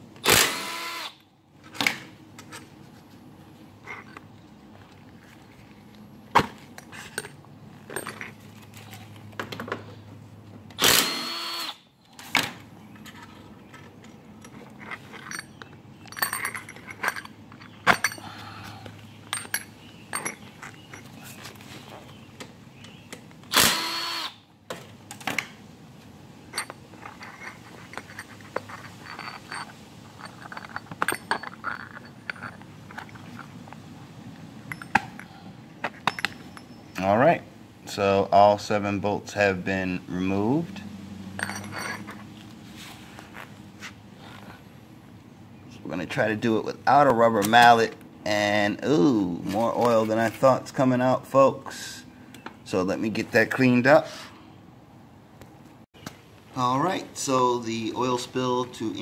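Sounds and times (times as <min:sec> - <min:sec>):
power drill spinning bolts: 0:00.2 - 0:01.2, 0:10.8 - 0:11.8, 0:23.5 - 0:24.4
metal clicks of bolts and tools: 0:13.0 - 0:18.2, 0:19.3 - 0:21.1, 0:26.5 - 0:33.8, 0:34.6 - 0:37.0, 0:41.4 - 0:42.2.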